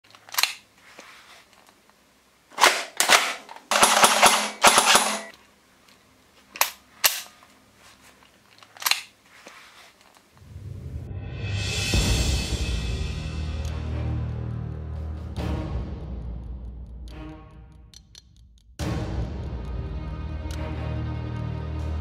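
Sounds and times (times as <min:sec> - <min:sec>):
gunshots: 0:02.6 - 0:05.3
rapid-fire gun bursts: 0:02.6 - 0:05.3.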